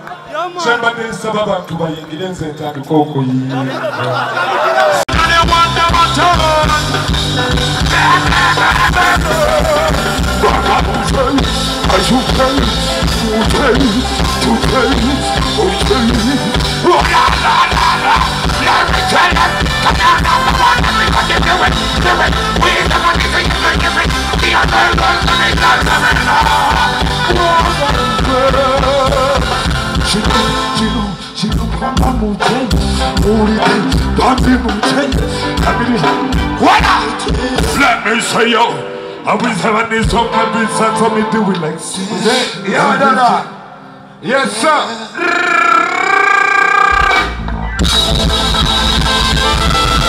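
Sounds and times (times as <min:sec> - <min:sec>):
live band playing upbeat song: 0:00.6 - 0:44.0, 0:46.0 - 0:50.0
person singing: 0:05.1 - 0:42.8, 0:45.0 - 0:47.3.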